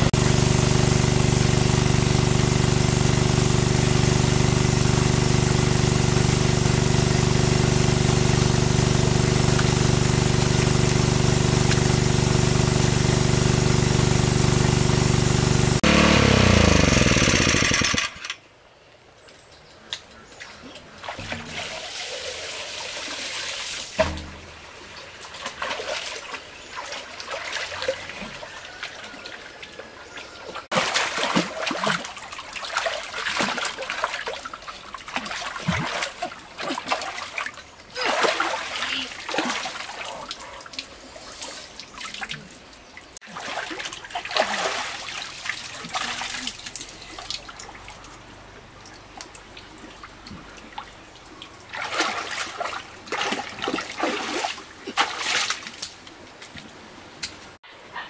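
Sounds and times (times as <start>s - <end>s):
pump motor winding down: 0.0s - 18.4s
water splashing and trickling: 19.3s - 57.6s.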